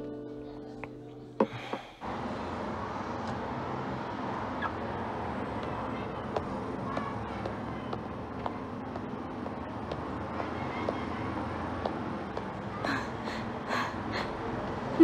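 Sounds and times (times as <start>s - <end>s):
music: 0.0s - 1.5s
street traffic hum: 0.0s - 15.0s.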